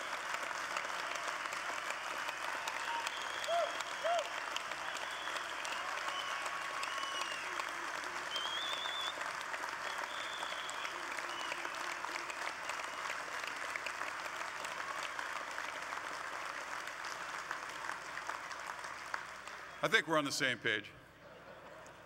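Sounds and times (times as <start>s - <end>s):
crowd applauding: 0.0s - 20.2s
high whistles: 2.8s - 4.3s, 4.9s - 7.5s, 8.3s - 9.2s, 9.8s - 11.7s.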